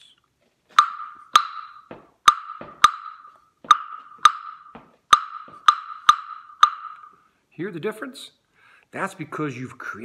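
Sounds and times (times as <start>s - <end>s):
wooden claves knocking: 0.7s - 7.2s.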